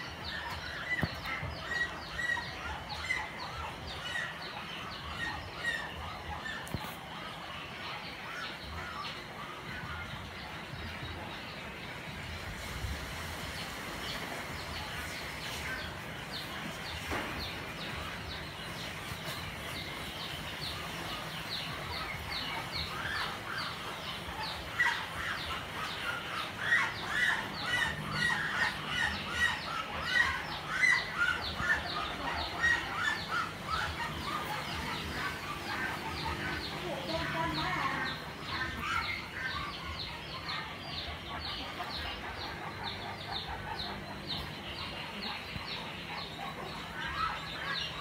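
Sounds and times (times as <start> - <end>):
small birds chirping: 0.0 - 48.0.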